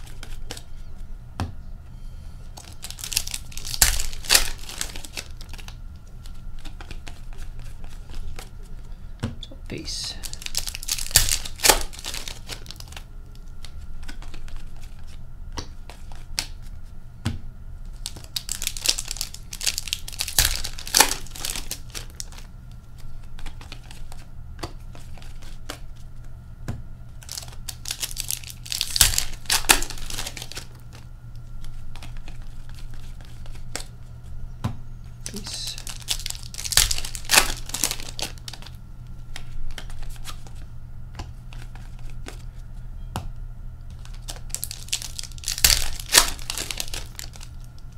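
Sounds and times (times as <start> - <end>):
cards being shuffled: 0.0 - 0.7, 2.5 - 8.6, 10.2 - 16.7, 17.9 - 26.3, 27.2 - 34.0, 35.2 - 42.6, 43.9 - 47.7
wrappers crinkling and tearing: 2.6 - 8.6, 10.1 - 15.2, 17.9 - 24.3, 27.2 - 34.0, 35.2 - 40.6, 43.9 - 47.9.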